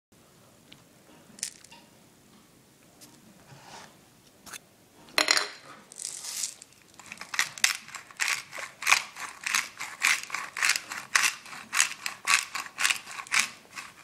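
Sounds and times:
pepper grinder crunching peppercorns: 5.9s - 14.0s.

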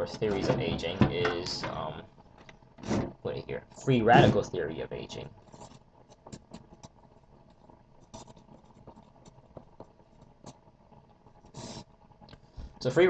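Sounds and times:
marker scratching on paper: 8.0s - 9.4s.

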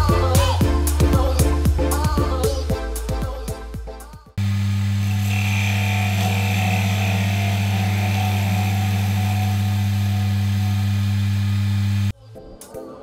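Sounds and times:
chisel cutting spinning wood: 4.4s - 12.1s
lathe motor humming: 4.4s - 12.1s
thin high whine: 4.4s - 12.1s.

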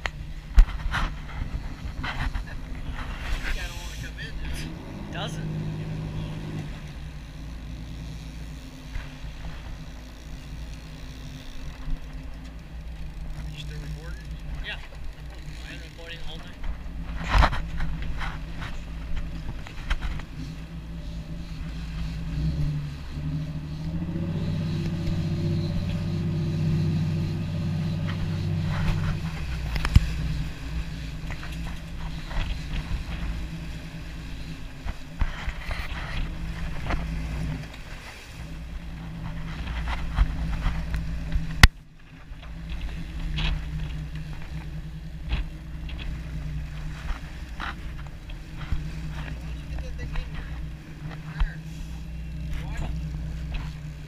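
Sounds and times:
wind on microphone: 0.0s - 5.0s
boat engines running: 0.0s - 54.0s
water rushing in wake: 0.0s - 54.0s.

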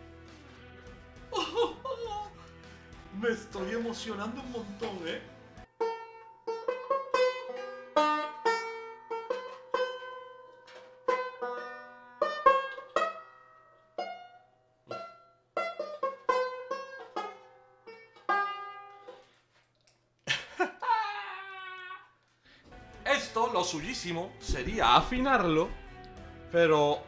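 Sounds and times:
loud banjo strokes: 3.6s - 19.5s.

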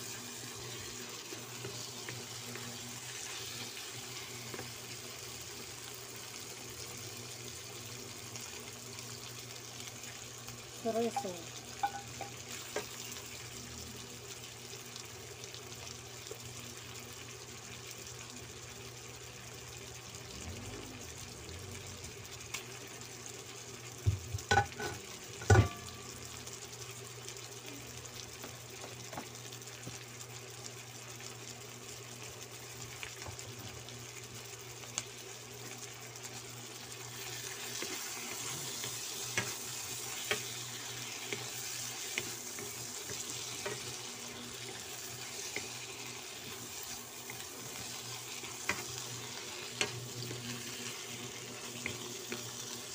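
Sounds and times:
chicken sizzling in a wok: 0.0s - 52.9s
spatula stirring pan: 11.0s - 13.5s, 35.6s - 52.9s.

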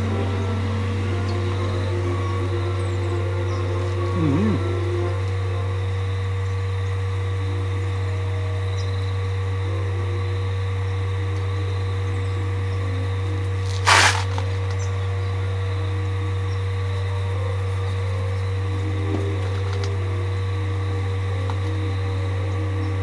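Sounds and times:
faint steady tones: 0.0s - 13.7s, 14.3s - 23.0s
steady low hum: 0.0s - 23.0s
short burst of hiss: 13.8s - 14.4s.

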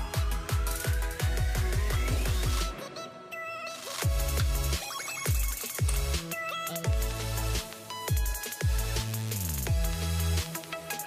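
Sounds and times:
deep kick drum beating: 0.1s - 2.7s.

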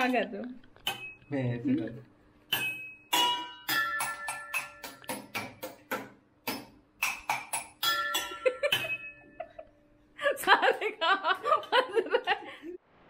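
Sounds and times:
spoon drumming on metal pots: 0.8s - 1.3s, 2.5s - 9.5s.

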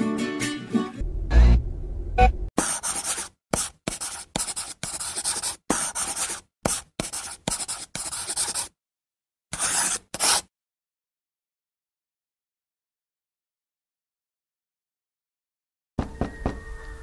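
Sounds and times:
scratching rubbing noise: 2.6s - 8.7s, 9.6s - 10.5s.

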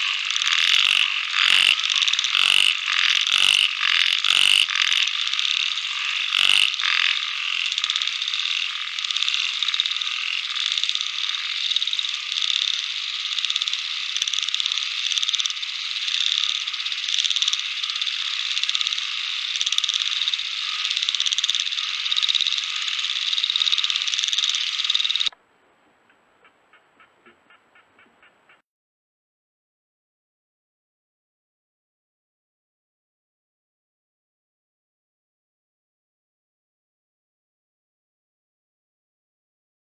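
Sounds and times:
frogs calling: 0.0s - 25.4s.

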